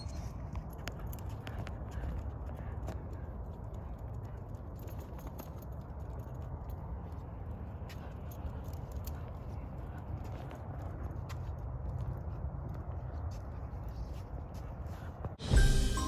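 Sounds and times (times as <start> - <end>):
footsteps on sidewalk: 0.0 - 16.0
steady low rumble: 0.0 - 16.0.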